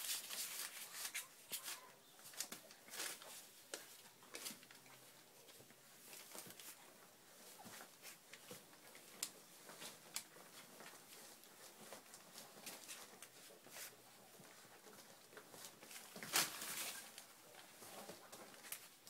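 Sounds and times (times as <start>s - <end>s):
bedding rustle: 0.0s - 19.0s
puppy paws scratching on bedding: 0.0s - 19.0s.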